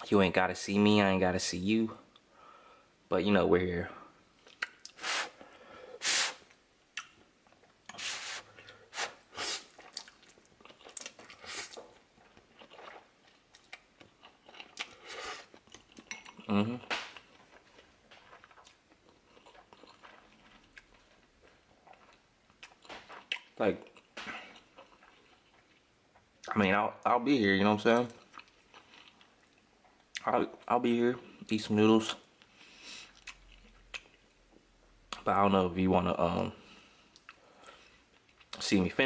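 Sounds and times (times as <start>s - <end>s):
person sniffling: 5.0s - 6.4s, 8.0s - 9.8s
slurping and chewing noodles: 7.0s - 16.5s, 17.2s - 26.6s.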